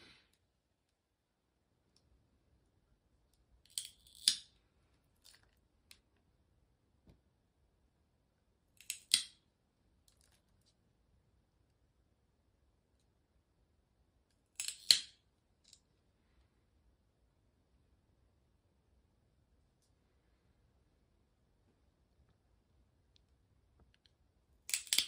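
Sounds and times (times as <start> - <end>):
nail clipper snipping claws: 3.7 - 4.5, 8.8 - 9.4, 14.6 - 15.2, 24.7 - 25.0.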